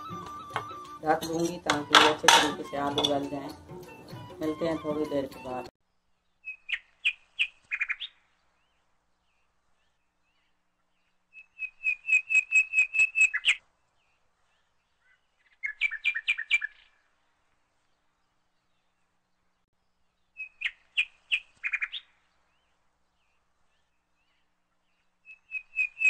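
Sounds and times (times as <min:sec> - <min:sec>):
small bird chirping: 0:06.1 - 0:17.2, 0:20.1 - 0:26.0.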